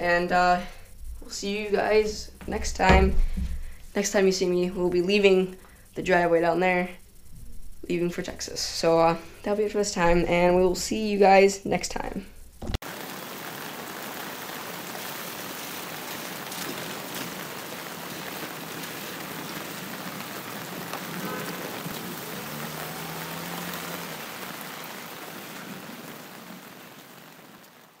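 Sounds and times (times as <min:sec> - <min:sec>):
faint low hum: 0:00.0 - 0:12.8
steady hiss of noise: 0:00.0 - 0:28.0.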